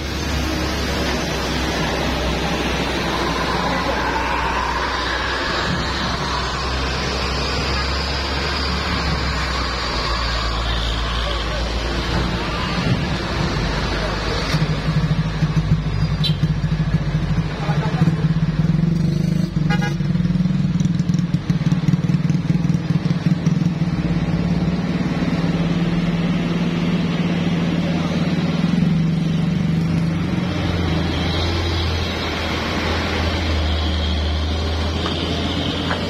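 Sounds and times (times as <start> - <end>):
heavy diesel truck passing: 0.0 - 16.2, 22.9 - 36.0
passing cars and motorcycles: 0.0 - 36.0
car horn toot: 16.2 - 16.5, 19.7 - 20.0.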